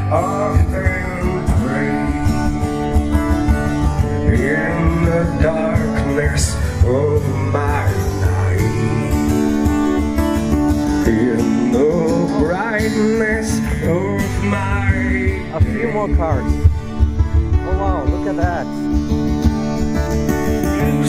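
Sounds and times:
man singing: 0.0s - 9.9s, 10.9s - 16.6s
acoustic guitar: 0.0s - 21.0s.

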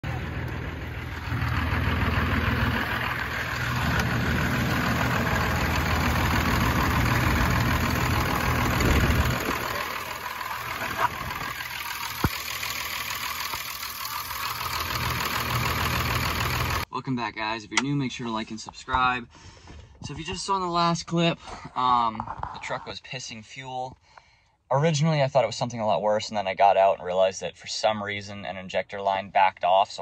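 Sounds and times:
diesel engine idling: 0.0s - 16.9s.

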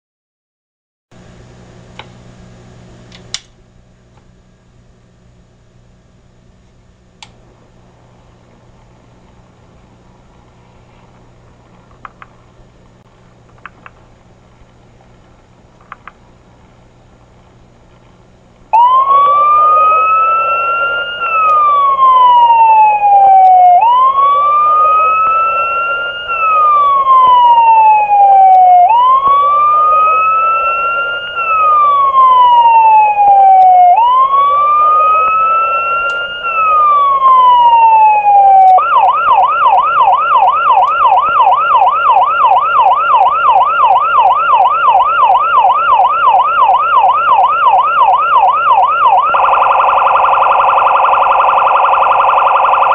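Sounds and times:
electronic police siren: 18.8s - 52.9s.

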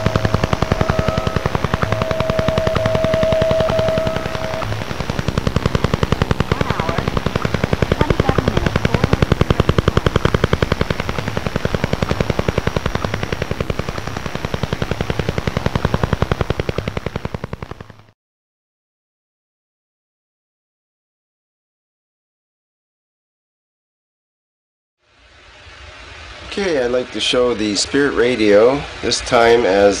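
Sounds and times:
steady high tone: 0.0s - 17.4s
rapid electronic pulses: 0.0s - 18.2s.

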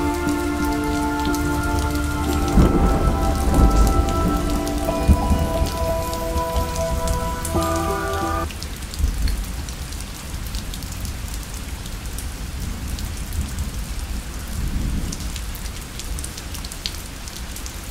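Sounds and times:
background music: 0.0s - 8.5s.

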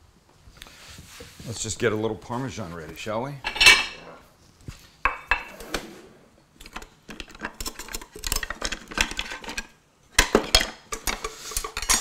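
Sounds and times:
utensils clattering in a drawer: 10.4s - 12.0s.

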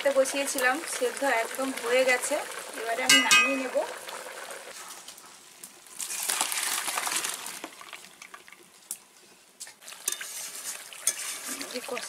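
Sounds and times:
water pouring into basket: 6.0s - 8.6s.

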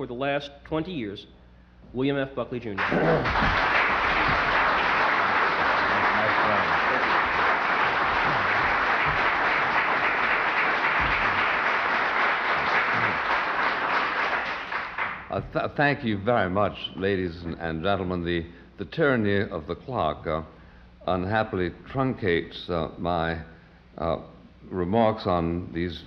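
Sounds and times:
audience applauding: 2.8s - 15.4s.

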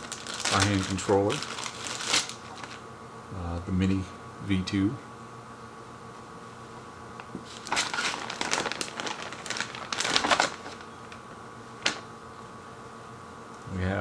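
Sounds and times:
plastic bag crinkling: 0.0s - 2.8s, 7.4s - 11.2s.

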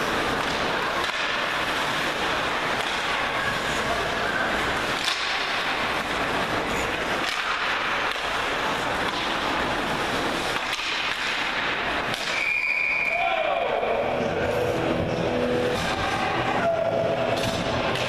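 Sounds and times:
ice rink noise: 0.0s - 18.0s
hockey stick knocking puck: 0.2s - 3.3s, 4.8s - 12.6s.

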